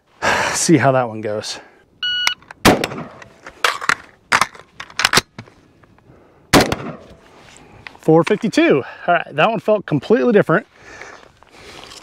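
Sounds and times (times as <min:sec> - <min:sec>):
rifle shots: 0:02.6 - 0:03.3, 0:06.5 - 0:07.2.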